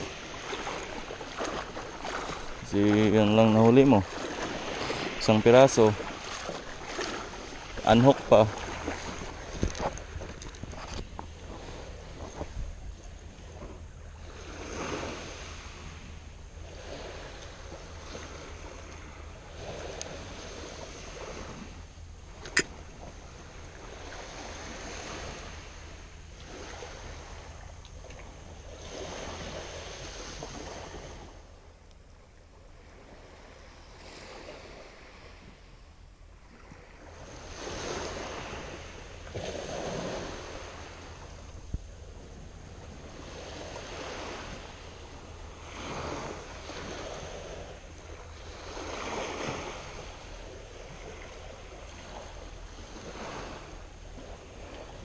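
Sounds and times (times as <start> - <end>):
wind on microphone: 0.0 - 25.7
sea waves washing on shore: 0.0 - 31.7, 36.4 - 55.0.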